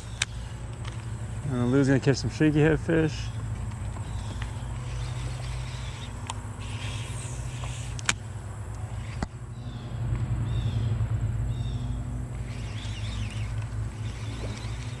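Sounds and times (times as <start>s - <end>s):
low motor hum: 0.0s - 15.0s
bird chirps: 4.0s - 7.8s, 9.0s - 15.0s.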